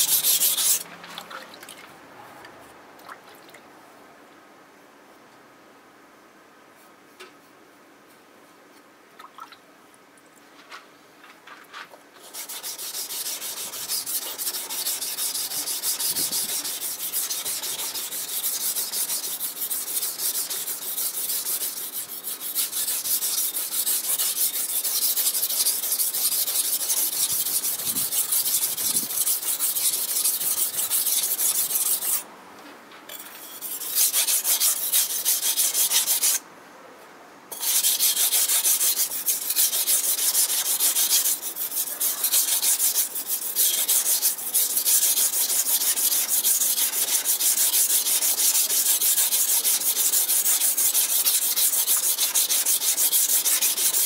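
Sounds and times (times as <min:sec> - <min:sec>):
knife scraping on whetstone: 0:00.0 - 0:00.8, 0:12.2 - 0:32.2, 0:33.1 - 0:36.4, 0:37.5 - 0:54.0.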